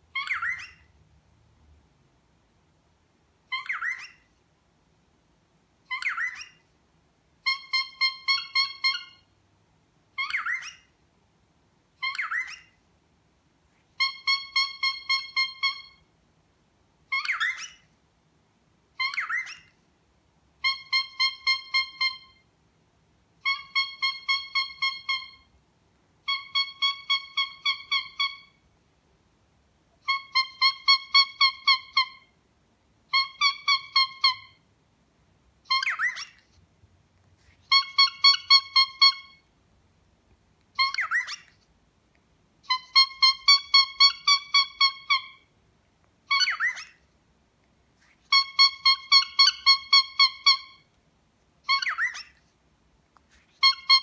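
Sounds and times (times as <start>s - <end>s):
cockatiel honking: 0.1s - 0.9s, 3.5s - 4.2s, 5.9s - 6.6s, 7.4s - 9.2s, 10.2s - 10.9s, 12.0s - 12.7s, 14.0s - 16.0s, 20.6s - 22.4s, 23.4s - 25.5s, 26.3s - 28.6s, 30.0s - 32.3s, 33.1s - 34.6s, 35.7s - 36.4s, 37.6s - 39.5s, 40.7s - 41.5s, 42.6s - 45.5s, 46.3s - 47.0s, 48.1s - 50.9s, 51.6s - 52.4s, 53.5s - 54.0s
cockatiel squeaks: 0.1s - 0.9s, 3.5s - 4.3s, 5.9s - 6.6s, 7.4s - 9.3s, 10.1s - 10.9s, 12.0s - 12.8s, 14.0s - 16.0s, 17.1s - 17.9s, 19.0s - 19.8s, 20.6s - 22.4s, 23.4s - 25.5s, 26.3s - 28.6s, 30.0s - 32.3s, 33.1s - 34.6s, 35.7s - 36.6s, 37.5s - 39.5s, 40.7s - 41.6s, 42.6s - 45.5s, 46.3s - 47.0s, 48.0s - 50.9s, 51.6s - 52.4s, 53.4s - 54.0s.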